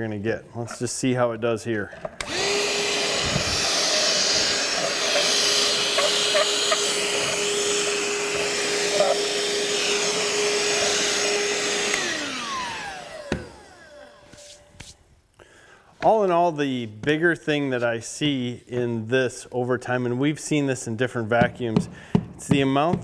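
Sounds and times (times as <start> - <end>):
vacuum winding down: 2.2 - 14.6
hand vacuum running: 2.2 - 14.7.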